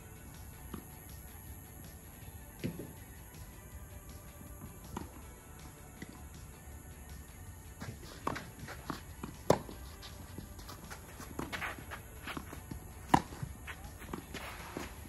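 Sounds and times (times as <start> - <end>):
racket striking tennis ball: 7.8 - 15.0
shoes scuffing on court: 7.8 - 15.0
ball bouncing: 10.4 - 14.4.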